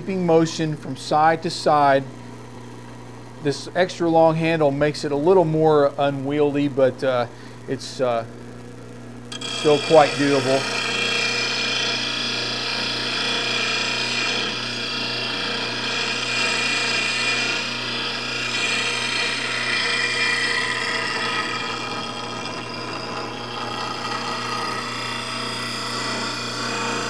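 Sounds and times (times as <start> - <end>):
bench grinder humming: 9.3 - 27.0.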